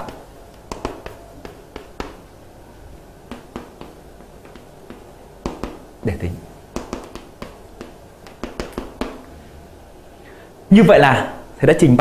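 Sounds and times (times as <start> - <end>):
taps of writing on a board: 0.0 - 2.3, 3.3 - 5.9, 6.7 - 9.3.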